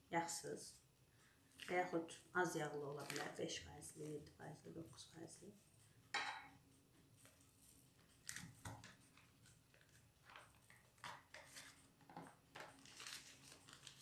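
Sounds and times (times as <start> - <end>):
paper wrapper rustling: 7.6 - 14.0.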